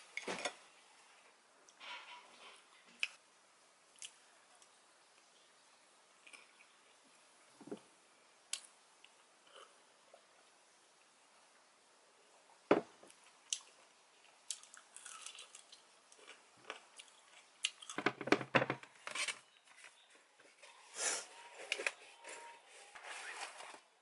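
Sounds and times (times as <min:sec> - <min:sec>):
glass mug set down: 0:12.7 - 0:12.9
person chewing: 0:13.1 - 0:18.0.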